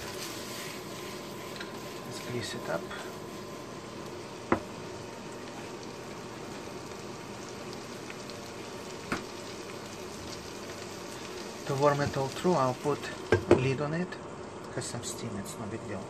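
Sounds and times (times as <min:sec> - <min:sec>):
food sizzling in a pan: 0:00.0 - 0:16.0
pan knocking on glass stovetop: 0:04.5 - 0:04.7, 0:13.3 - 0:13.6.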